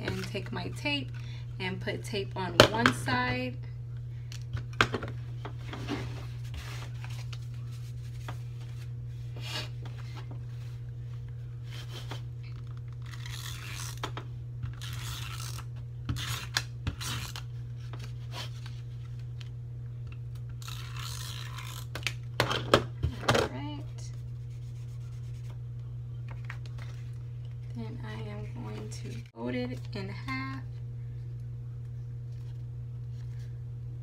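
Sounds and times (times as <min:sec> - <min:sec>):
steady low hum: 0:00.0 - 0:34.0
tape runner scraping on card: 0:12.7 - 0:17.5, 0:20.6 - 0:22.0.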